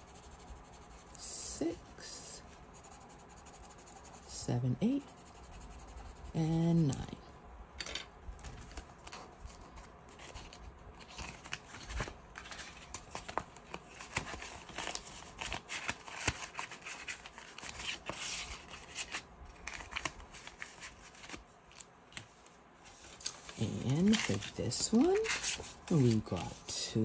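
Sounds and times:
paper rustling and crinkling: 8.4s - 26.7s.

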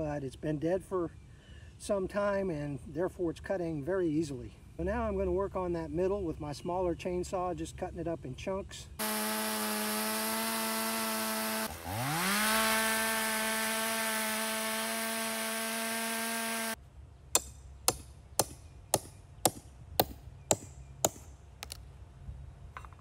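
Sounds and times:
chainsaw cutting at full throttle: 9.0s - 16.8s.

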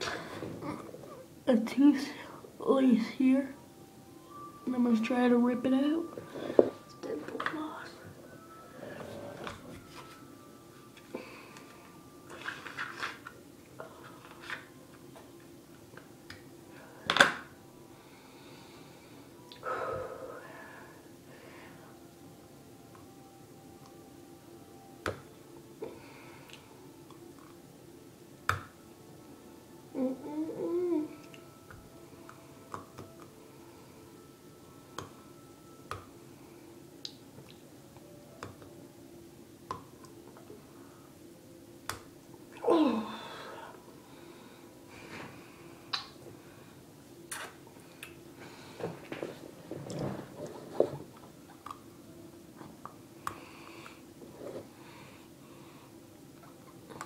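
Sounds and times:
faint steady hum: 0.0s - 57.0s
wet mouth clicks: 45.9s - 46.1s, 47.3s - 48.2s.

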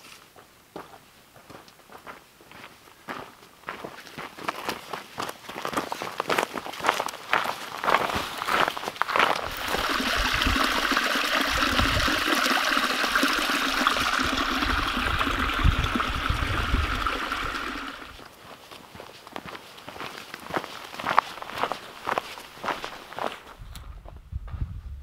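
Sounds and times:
footsteps on dirt trail: 0.0s - 9.8s, 18.2s - 24.7s
creek trickling and splashing: 9.2s - 18.3s.

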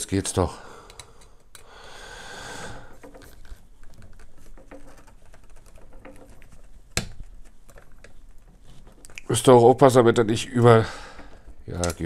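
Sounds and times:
small clicks and taps: 0.8s - 1.7s, 2.9s - 9.3s, 11.2s - 12.0s.

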